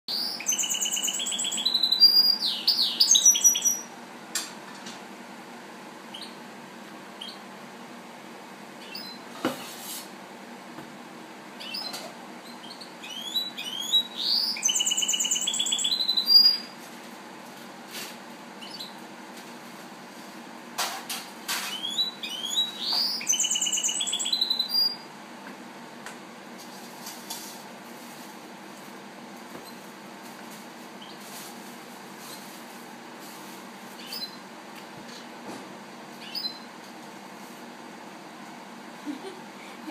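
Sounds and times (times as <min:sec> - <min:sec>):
songbird trilling: 0:00.1 - 0:03.9, 0:11.6 - 0:16.7, 0:21.8 - 0:25.0, 0:36.2 - 0:36.7.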